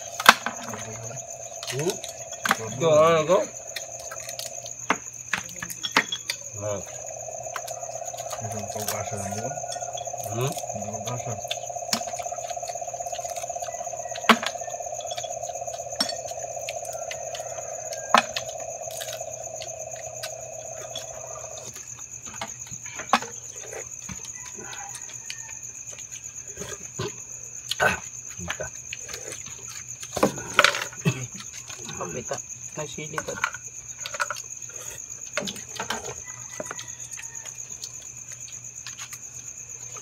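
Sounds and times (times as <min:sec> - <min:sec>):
crickets chirring: 0:00.0 - 0:40.0.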